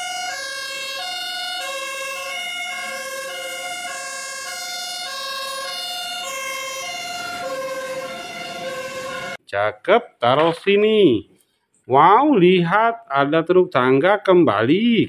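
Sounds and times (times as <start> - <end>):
fire engine two-tone siren: 0.0 - 9.4.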